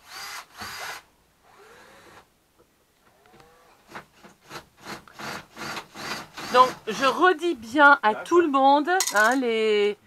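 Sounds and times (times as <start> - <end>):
saw cutting wood: 3.9 - 7.3.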